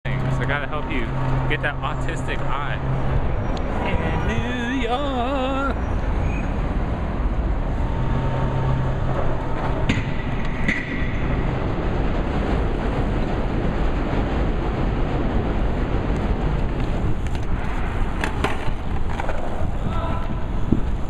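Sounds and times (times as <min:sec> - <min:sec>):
loud rumbling with low hum: 0:00.0 - 0:21.0.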